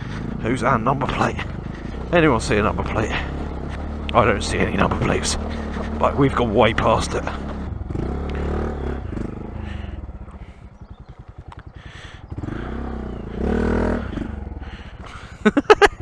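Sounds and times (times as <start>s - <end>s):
motorcycle engine chugging: 0.0s - 16.0s.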